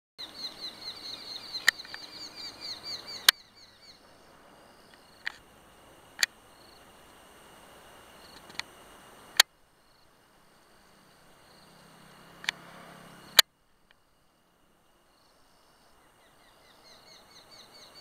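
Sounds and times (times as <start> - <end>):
nestlings peeping: 0.2 - 5.4.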